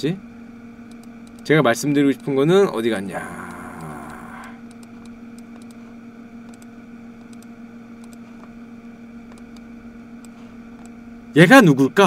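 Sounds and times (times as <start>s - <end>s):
steady electrical hum: 0.0s - 12.0s
faint clicking at a computer: 0.9s - 1.5s, 4.7s - 5.8s, 6.5s - 8.2s.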